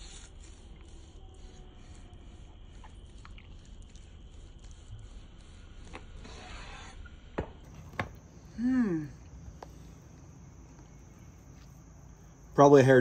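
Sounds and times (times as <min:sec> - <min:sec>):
crickets chirring: 0:00.0 - 0:13.0
knife knocking on board: 0:07.7 - 0:08.2
person humming: 0:08.4 - 0:09.9.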